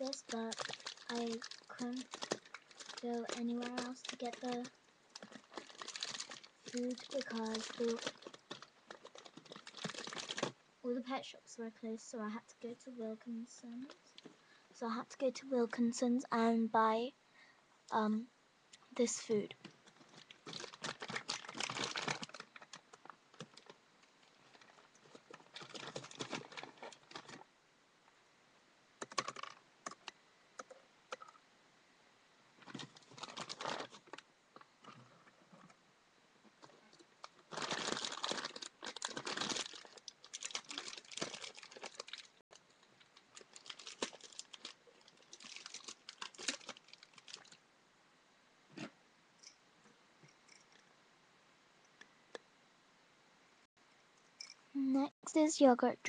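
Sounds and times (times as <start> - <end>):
plastic bag crinkling: 0.0 - 10.6, 19.7 - 27.5, 29.0 - 30.1, 32.6 - 34.2, 36.9 - 47.6.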